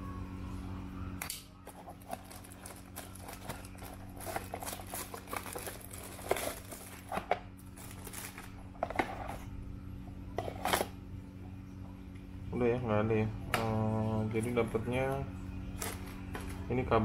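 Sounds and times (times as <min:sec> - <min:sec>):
steady low hum: 0:00.0 - 0:17.0
plastic packaging crinkling: 0:01.6 - 0:08.8, 0:15.7 - 0:16.7.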